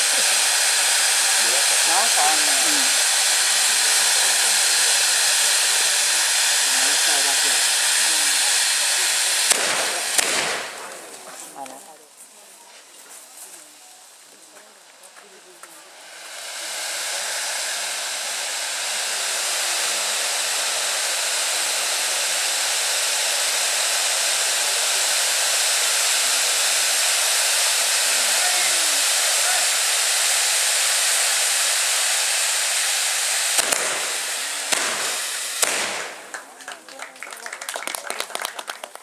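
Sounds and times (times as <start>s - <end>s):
fireworks hissing: 0.0s - 39.0s
sharp bangs: 5.3s - 11.3s, 33.3s - 36.6s.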